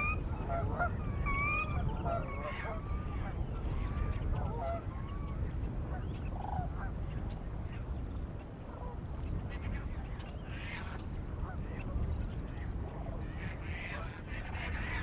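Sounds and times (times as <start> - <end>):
geese honking: 0.0 - 3.4.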